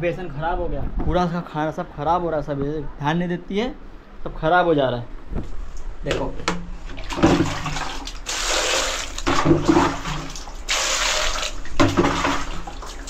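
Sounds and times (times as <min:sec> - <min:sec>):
water pouring into plastic bowl: 0:07.0 - 0:13.0.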